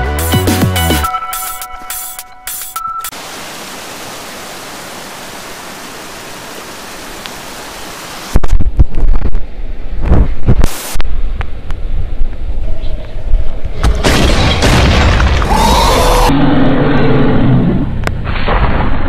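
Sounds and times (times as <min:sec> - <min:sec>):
electronic music: 0:00.0 - 0:03.1
static hiss: 0:03.2 - 0:11.6
deep rumbling booms: 0:13.8 - 0:16.3.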